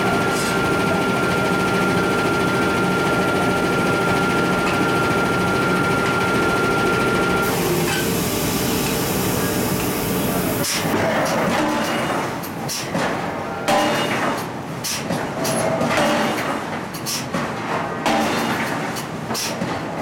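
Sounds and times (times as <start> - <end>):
thin steady whine: 0.0 - 11.0
power hammer machinery running: 0.0 - 12.1.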